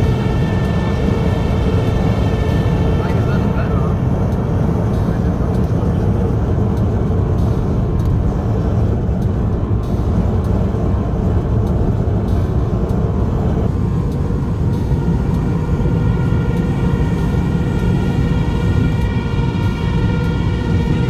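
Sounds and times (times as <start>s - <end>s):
car road and engine noise: 0.0s - 21.0s.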